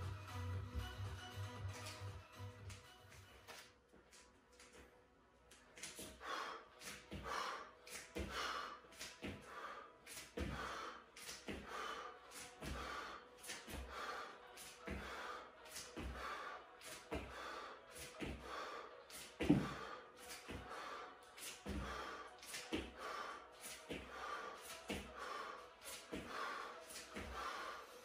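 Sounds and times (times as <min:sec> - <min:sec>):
man breathing hard: 0:05.8 - 0:28.0
bare feet thudding on mat: 0:19.4 - 0:19.8.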